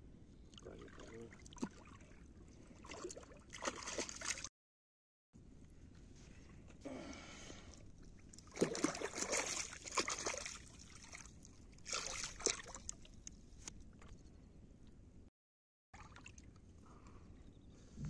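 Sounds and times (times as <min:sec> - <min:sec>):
water sloshing and splashing: 0:00.5 - 0:04.5, 0:08.0 - 0:14.1, 0:16.0 - 0:16.7.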